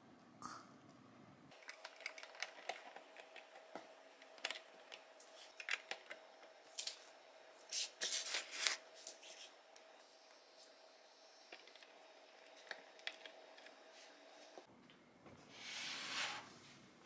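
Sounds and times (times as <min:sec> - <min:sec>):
plastic bricks clicking and rattling: 0:01.5 - 0:05.0.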